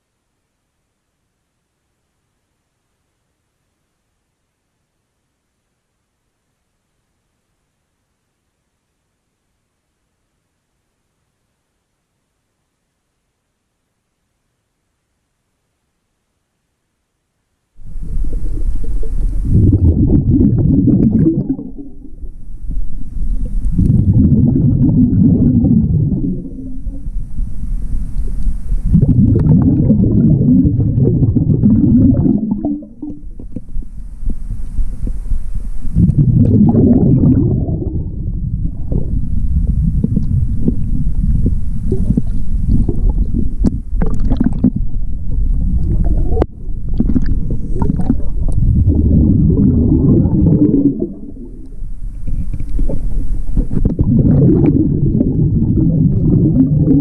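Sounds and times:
bubbling exhalation underwater: 0:17.8 - 0:27.2, 0:28.8 - 0:34.0, 0:35.9 - 0:51.7, 0:52.7 - 0:57.0.

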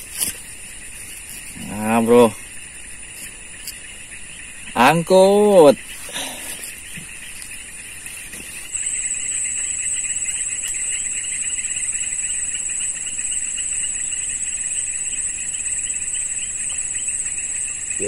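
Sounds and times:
high-pitched insect chorus: 0:00.0 - 0:18.0
insect pulsing shrill trill: 0:00.0 - 0:18.0.

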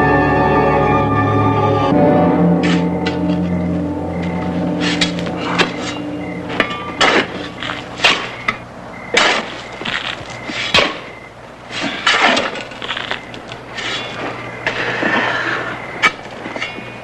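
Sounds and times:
shovels digging sandy earth: 0:04.8 - 0:11.1, 0:11.7 - 0:16.8.

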